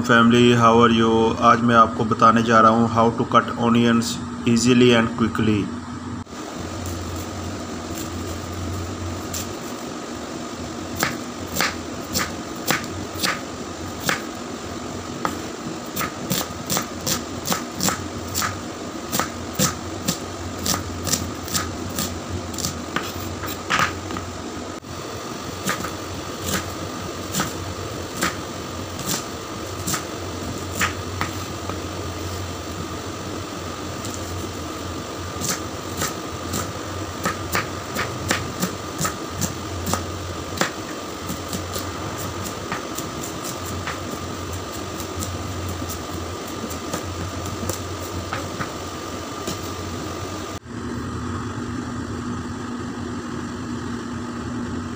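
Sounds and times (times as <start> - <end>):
steady mechanical hum: 0.0 - 54.9
knife chopping on wooden board: 11.0 - 13.4, 14.0 - 14.3, 16.0 - 24.3, 25.6 - 28.4, 29.0 - 29.2, 29.8 - 30.1, 30.7 - 31.8, 35.4 - 44.1.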